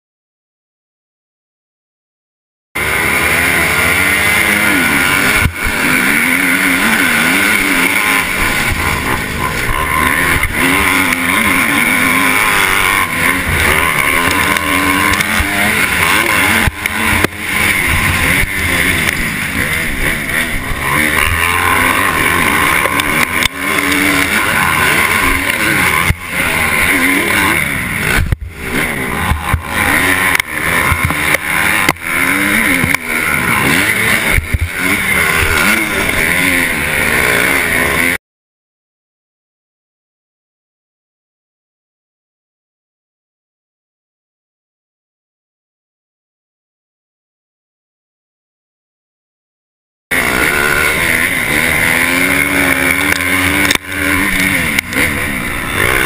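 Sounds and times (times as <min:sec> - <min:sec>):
dirt bike engine revving: 0:02.8 - 0:38.2, 0:50.1 - 0:56.0.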